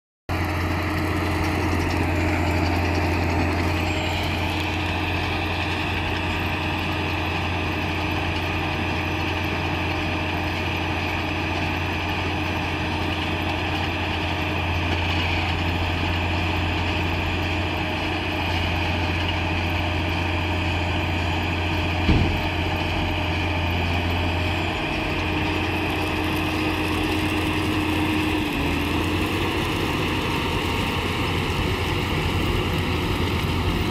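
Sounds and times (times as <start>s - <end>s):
tractor diesel engine running: 0.3s - 33.9s
sharp thump: 22.0s - 22.6s
round baler baling straw: 24.2s - 33.9s.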